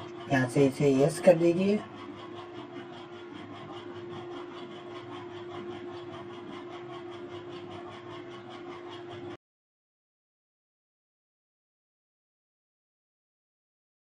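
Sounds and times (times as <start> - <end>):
steady machine hum: 0.0 - 9.4.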